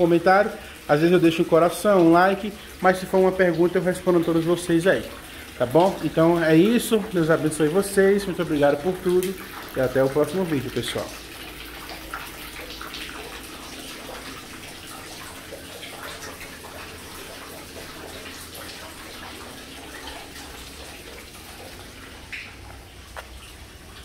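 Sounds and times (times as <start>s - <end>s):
running splashing water: 0.0s - 24.0s
water drips: 0.0s - 24.0s.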